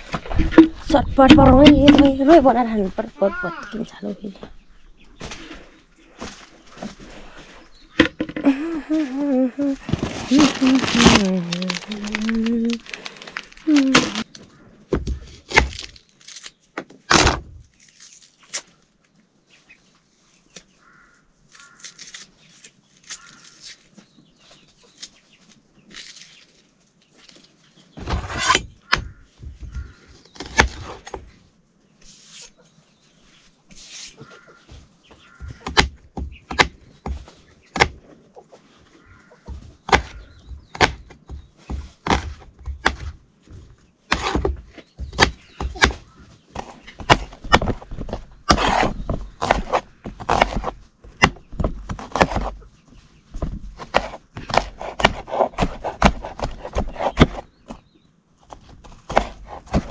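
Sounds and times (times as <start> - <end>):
sharp knocks and slaps: 35.2 - 38.0
chickens clucking: 37.4 - 40.4.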